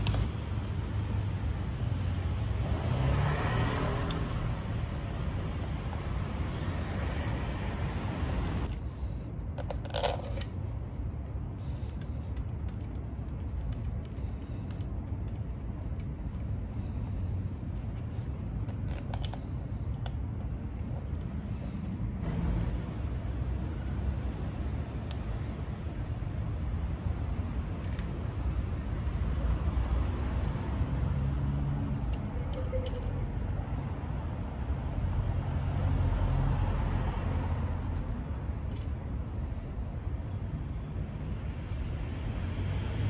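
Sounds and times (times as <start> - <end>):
car passing: 0.0 - 9.3, 28.6 - 32.2, 33.5 - 43.0
low street rumble: 0.0 - 43.0
metal bolts and hex key clinking: 9.5 - 10.6, 18.6 - 19.4, 32.0 - 33.4.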